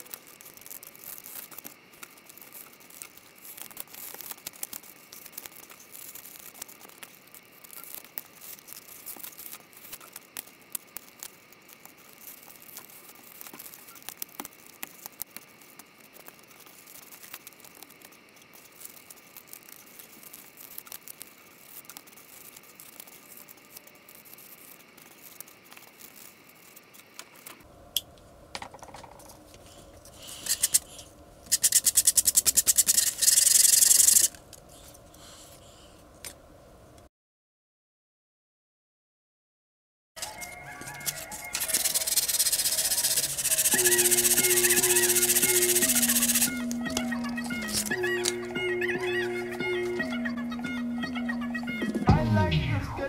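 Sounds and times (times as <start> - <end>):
polystyrene foam crackling and snapping: 0.0 - 27.1, 40.2 - 48.4.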